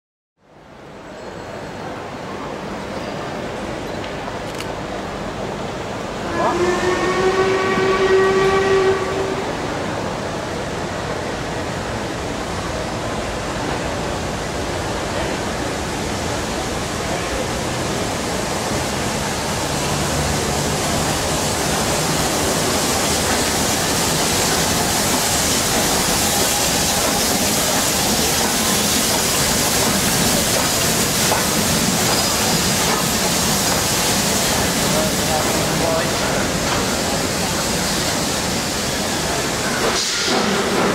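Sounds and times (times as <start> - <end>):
steam train hiss and rumble: 0.6 - 40.9
steam locomotive whistle: 6.2 - 9.7.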